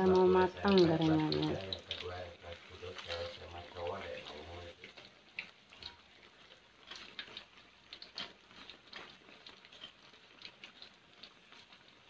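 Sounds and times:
hot oil crackling and popping: 0.0 - 12.0.

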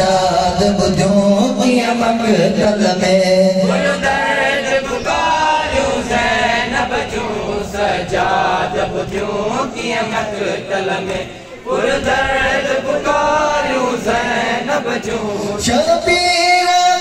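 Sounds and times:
lead voice through a microphone: 0.0 - 6.5, 14.0 - 17.0
men chanting in unison: 0.0 - 17.0.

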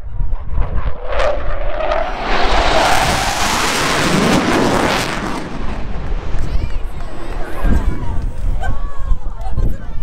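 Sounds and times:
fighter jet roaring past: 0.3 - 8.2.

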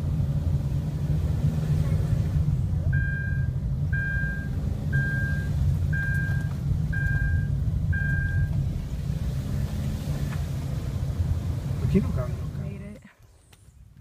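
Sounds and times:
car engine and tyres rumbling: 0.0 - 14.0
short electronic beeps: 2.9 - 8.5.

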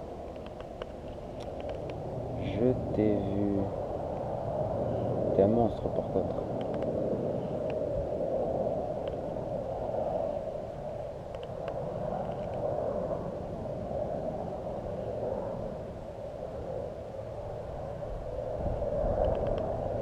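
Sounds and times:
wind noise on microphone: 0.0 - 20.0
faint clicks: 0.2 - 2.0, 19.2 - 19.7.

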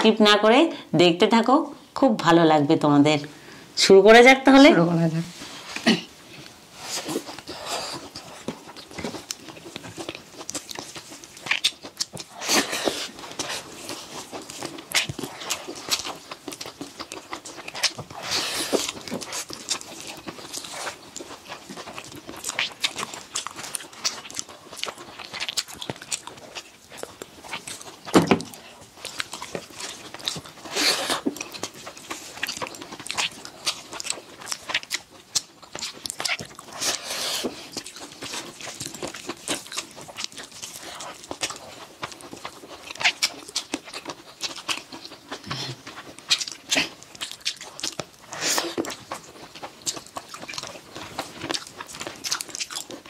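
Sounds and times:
lip-smacking and chewing: 5.7 - 53.0.

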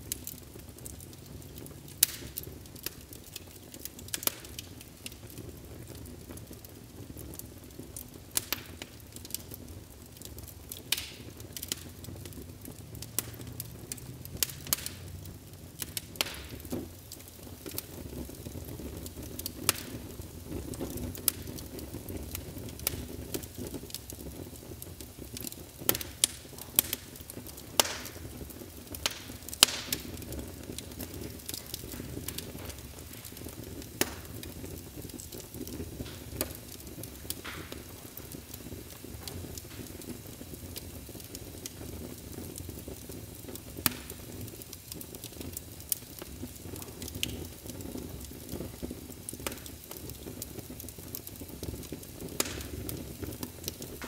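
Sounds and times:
fire crackling and popping: 0.0 - 54.0
low rush of flame: 0.0 - 54.0.

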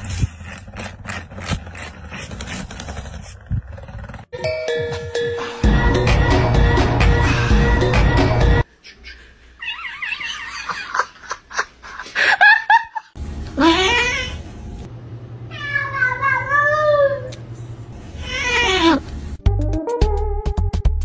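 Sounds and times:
cats yowling: 9.6 - 10.8, 13.6 - 14.4, 18.2 - 19.0.

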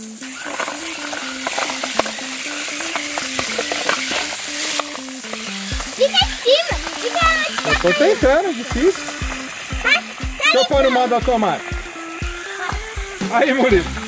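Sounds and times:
simple background melody: 0.0 - 14.0
water spraying on stone floor: 0.0 - 14.0.

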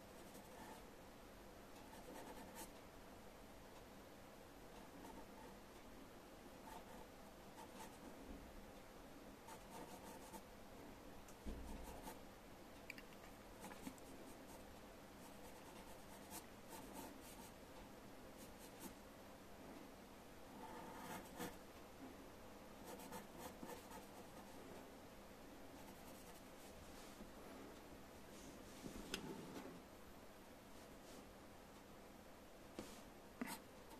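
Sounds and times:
pencil scratching on paper: 1.9 - 2.7, 9.5 - 10.4, 20.6 - 21.6, 22.9 - 24.6, 25.8 - 26.4.

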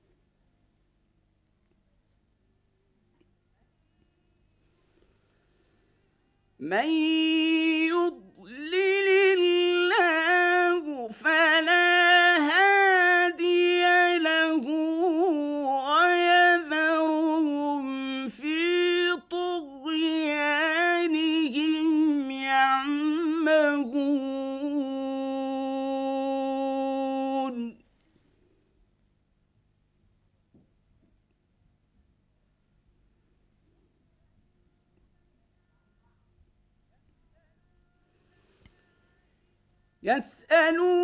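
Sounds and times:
short breaths: 4.6 - 6.3, 38.1 - 39.2
man chanting melodically: 6.6 - 27.8, 40.0 - 41.0.

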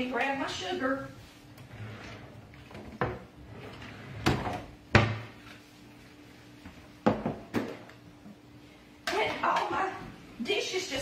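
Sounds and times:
cabinet door knocks and bumps: 4.2 - 5.3.

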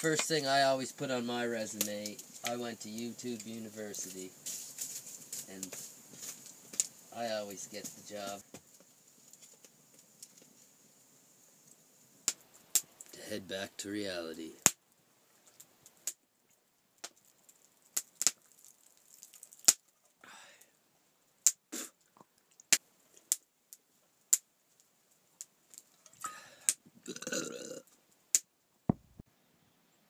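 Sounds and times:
man drinking from a mug: 26.1 - 27.9
throaty gulp or burp: 27.0 - 27.9.

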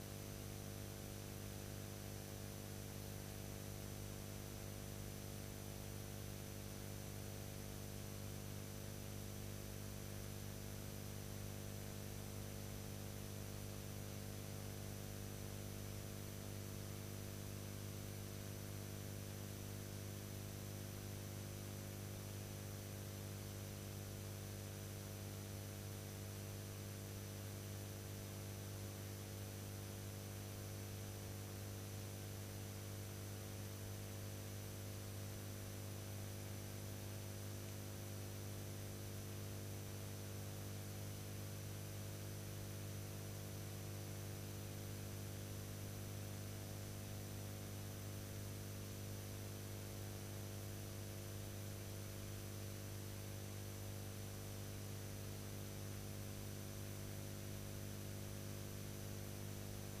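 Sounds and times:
electrical mains hum: 58.0 - 60.0.

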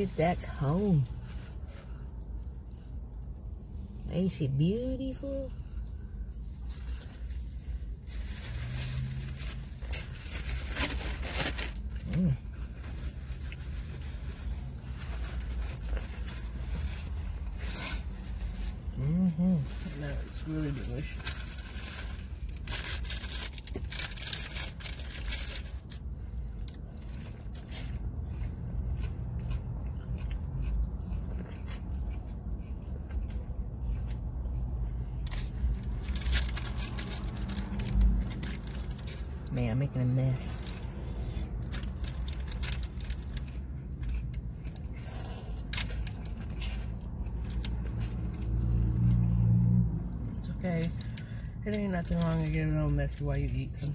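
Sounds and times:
corn on the cob crunching: 21.0 - 39.4, 40.4 - 51.3.

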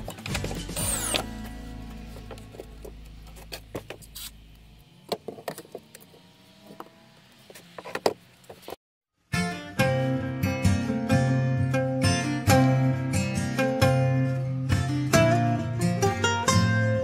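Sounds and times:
low hum: 0.8 - 5.1.

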